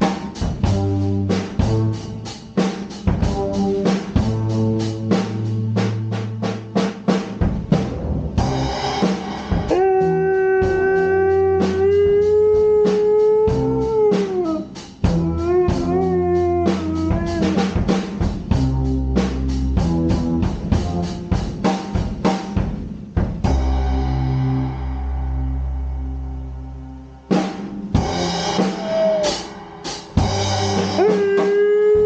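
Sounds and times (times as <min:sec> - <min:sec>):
music with drum kit: 0:00.0 - 0:32.0
dog howling: 0:09.7 - 0:17.8, 0:28.8 - 0:29.5, 0:30.9 - 0:32.0.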